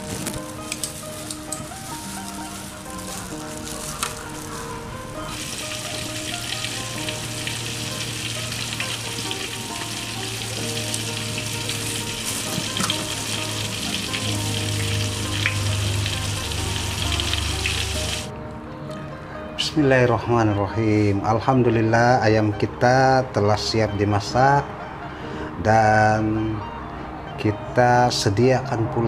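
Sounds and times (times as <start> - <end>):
oil sizzling and crackling in a wok: 0.0 - 18.3.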